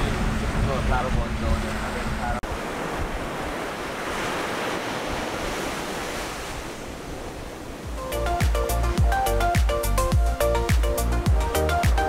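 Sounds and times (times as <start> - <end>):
ocean waves washing ashore: 0.0 - 12.0.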